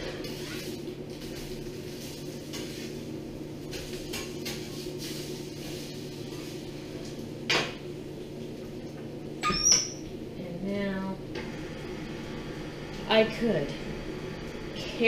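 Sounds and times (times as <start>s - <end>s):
stand mixer humming: 11.4s - 15.0s.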